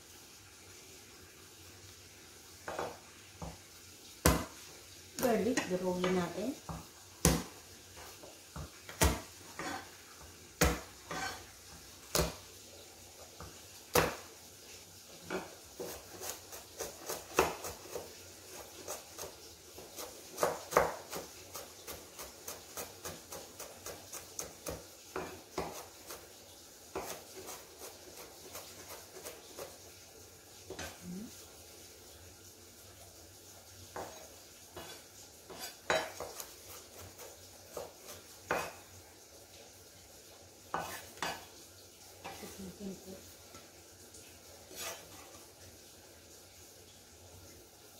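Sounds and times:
cleaver chopping on wooden board: 4.2 - 4.5, 6.7 - 7.6, 8.9 - 9.8, 10.6 - 11.2.

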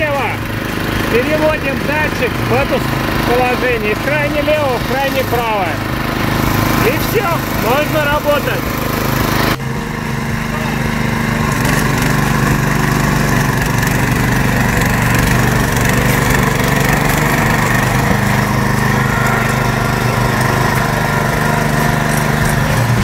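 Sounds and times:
cultivator engine running: 0.0 - 23.0
tines churning turf: 0.0 - 23.0.

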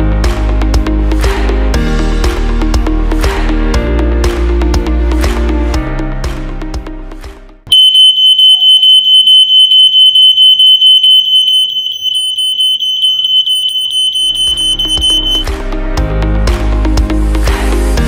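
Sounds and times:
smoke alarm pulsing buzzer: 7.7 - 15.5.

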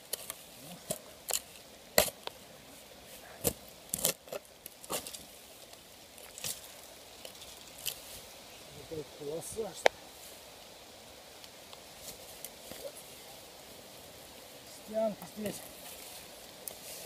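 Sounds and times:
digging tool striking soil and metal: 0.0 - 2.3, 3.4 - 5.2.

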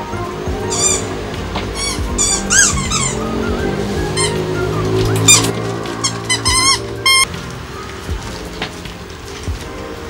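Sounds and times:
background music: 0.0 - 10.0
high-pitched squeaks: 0.6 - 7.3.

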